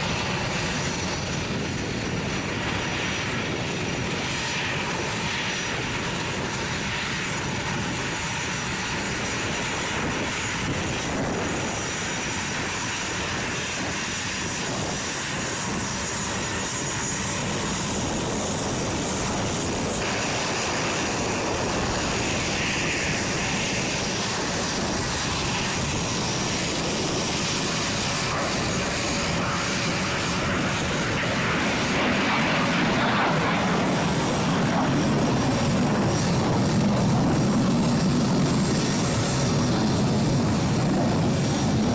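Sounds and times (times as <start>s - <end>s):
jet engines roaring: 0.0s - 41.9s.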